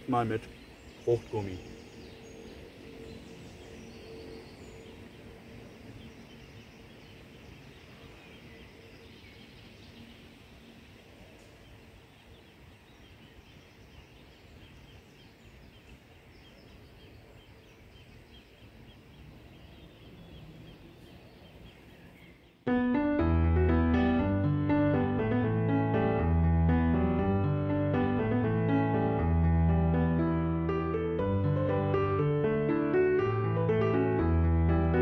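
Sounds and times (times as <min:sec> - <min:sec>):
bird chirps: 0:00.0 - 0:22.7
piano background music: 0:22.7 - 0:35.0.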